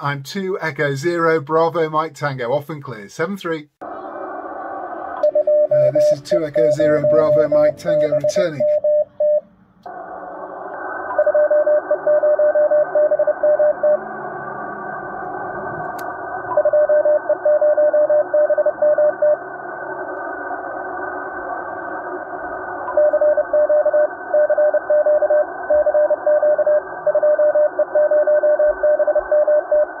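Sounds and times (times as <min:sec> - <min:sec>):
radio receiver hiss: 0:03.1 - 0:17.2, 0:18.0 - 0:24.4
morse code tone: 0:05.2 - 0:09.5, 0:11.2 - 0:14.0.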